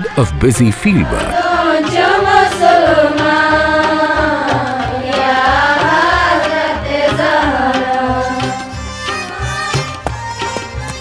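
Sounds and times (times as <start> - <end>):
steady low beat: 0.0 - 3.5
women singing devotional song: 1.3 - 8.7.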